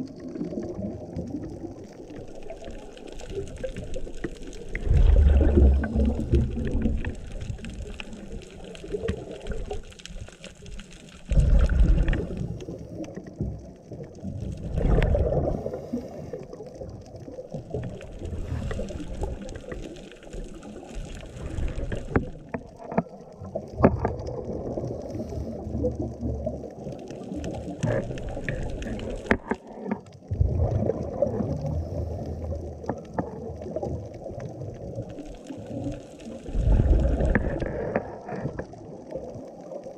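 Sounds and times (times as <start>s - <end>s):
regulator bubbles gurgling underwater: 0.0s - 39.9s.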